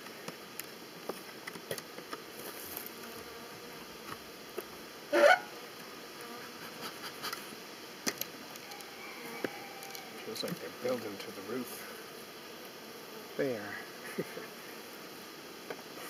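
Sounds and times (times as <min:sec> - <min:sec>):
hive tool clicking and scraping wood: 0:00.2 - 0:03.0, 0:05.8 - 0:10.6.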